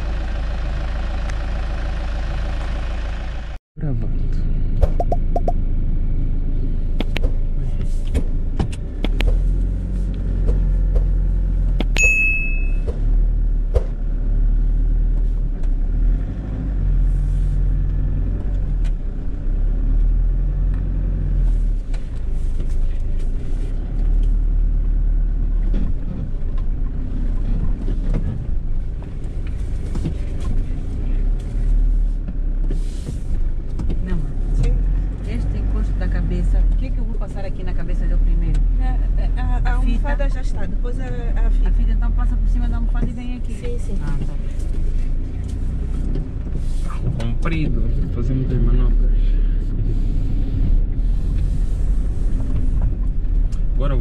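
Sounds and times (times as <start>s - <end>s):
car engine low rumble: 0.0s - 54.0s
brief high tone: 5.0s - 5.6s, 12.0s - 12.8s.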